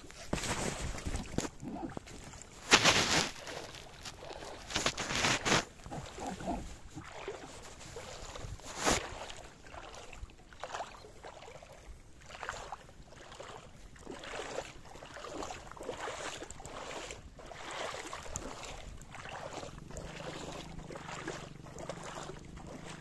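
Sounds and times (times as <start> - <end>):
rubbing and rustling: 0.0 - 9.0.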